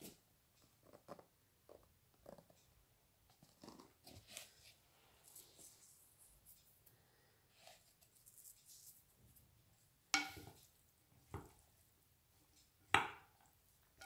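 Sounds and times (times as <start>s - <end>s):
wooden spoon knocking glass bowl: 10.2s - 10.6s.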